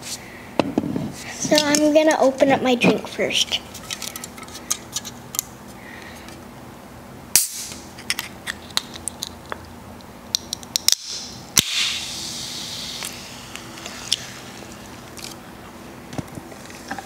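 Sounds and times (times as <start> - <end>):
can popping open: 7.4 - 9.3, 12.8 - 15.4
soda fizzing hiss: 11.7 - 15.3.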